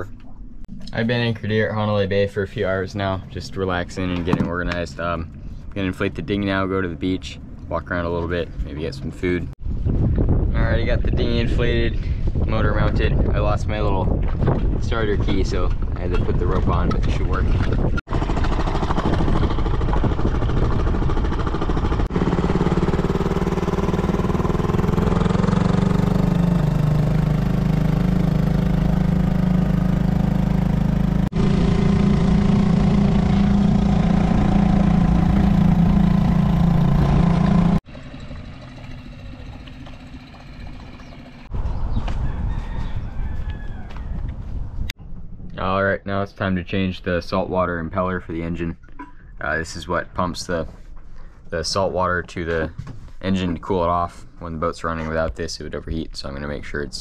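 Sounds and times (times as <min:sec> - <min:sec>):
outboard motor running: 0:15.2 - 0:41.5.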